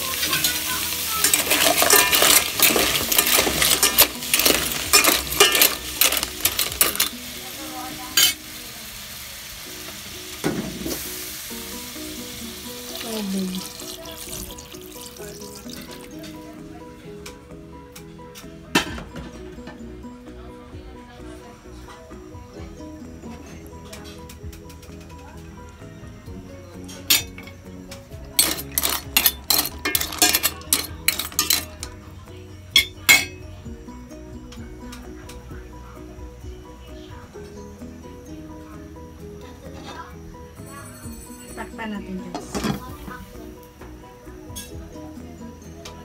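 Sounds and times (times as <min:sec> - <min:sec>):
clam shells clinking in pot: 0:00.2 - 0:07.4, 0:08.2 - 0:08.4, 0:27.0 - 0:27.6, 0:28.3 - 0:32.0, 0:32.7 - 0:33.4
simple repeating background music: 0:09.6 - 0:46.0.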